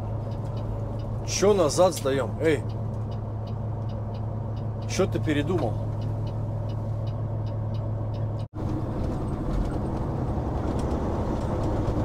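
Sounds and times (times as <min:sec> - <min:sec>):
road noise: 0:00.0 - 0:12.0
faint regular ticking: 0:00.2 - 0:08.5.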